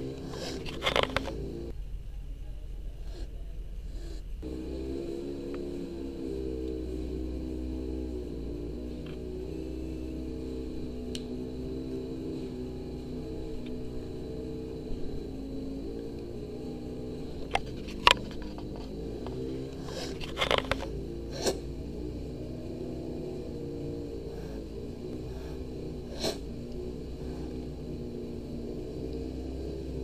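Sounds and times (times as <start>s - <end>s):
kitten hissing and spitting: 0.2s - 1.3s, 19.8s - 21.7s, 25.3s - 26.5s.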